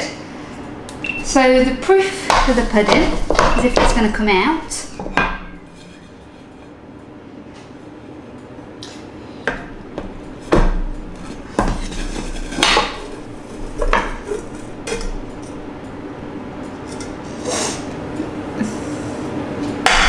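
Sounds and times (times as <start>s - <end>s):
pan and plate clattering: 2.6s - 6.7s.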